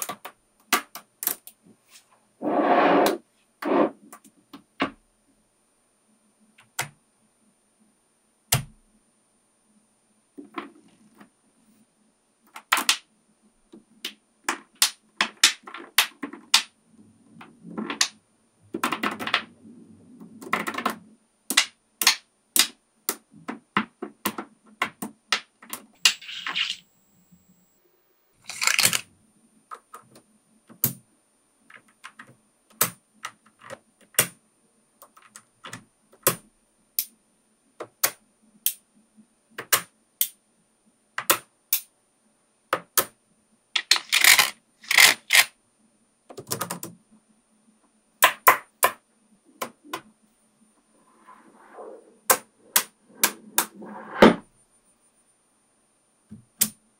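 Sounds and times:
magnet balls rattling: 26.0s - 26.9s, 28.3s - 29.1s, 43.8s - 45.4s
magnet balls clicking together: 28.4s - 29.1s, 43.8s - 45.5s.

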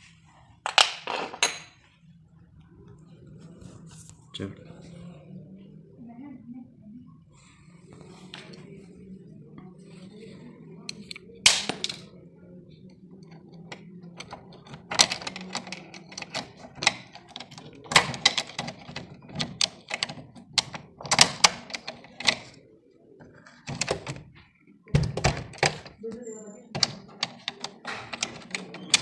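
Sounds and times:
screwdriver clicking in a lock: 13.2s - 22.4s.

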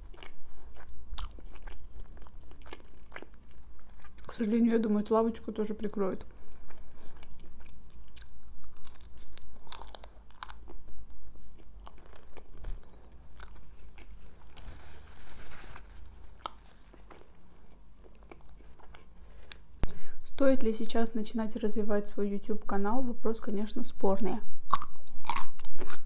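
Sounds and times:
crunchy chewing: 0.0s - 4.5s, 6.3s - 19.8s, 24.7s - 26.0s
paper napkin rustle: 14.5s - 16.9s.

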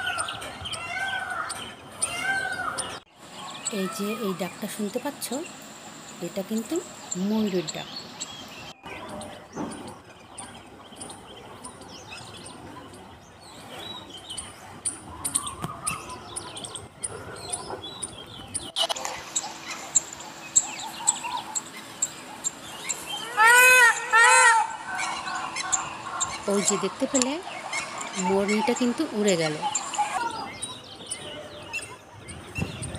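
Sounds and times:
small birds chirping: 0.0s - 32.9s
peafowl honking calls: 17.4s - 32.4s.

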